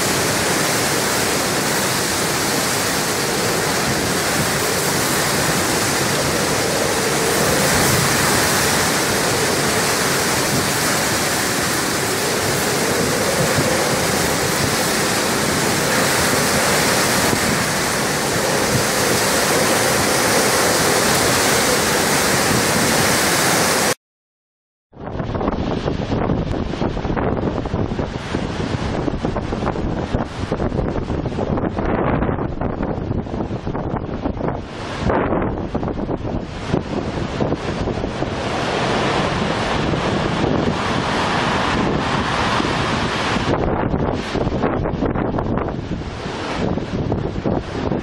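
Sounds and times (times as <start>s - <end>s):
driving rain: 0.0s - 24.0s, 32.5s - 48.0s
storm-force wind: 0.0s - 24.0s, 24.9s - 48.0s.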